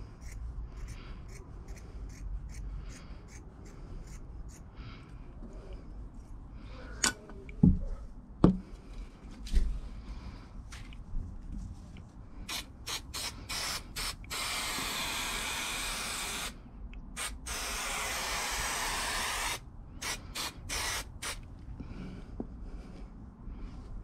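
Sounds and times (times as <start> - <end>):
aerosol spray can hissing: 12.5 - 16.5, 17.2 - 21.4.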